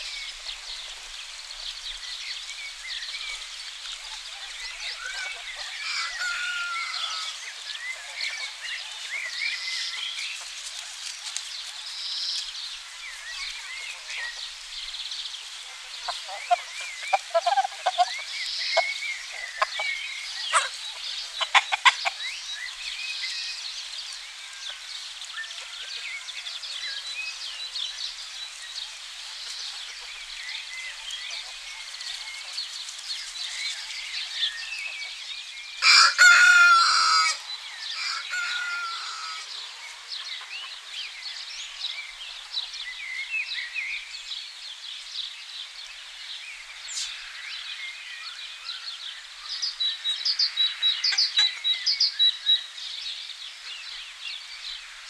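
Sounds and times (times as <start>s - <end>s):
small birds chirping: 0.0s - 35.8s, 38.7s - 55.0s
rooster crowing: 5.2s - 7.4s, 35.8s - 39.5s
chickens clucking: 15.6s - 22.5s.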